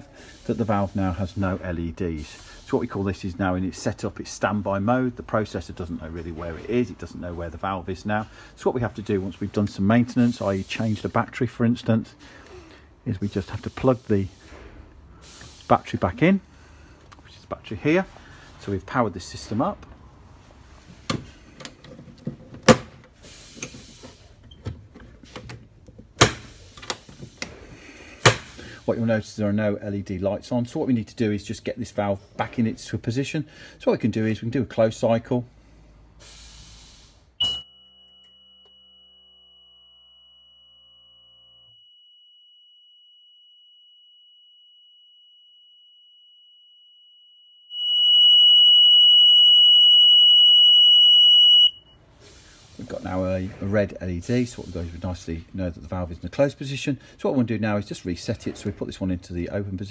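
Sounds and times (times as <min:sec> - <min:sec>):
electronic buzzer high-pitched tone: 0:39.3 - 0:42.0, 0:47.7 - 0:52.0.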